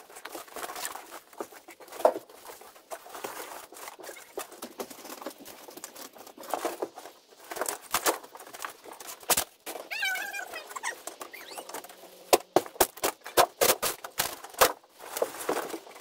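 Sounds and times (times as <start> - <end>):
wood panelling tearing: 10.8 - 16.0.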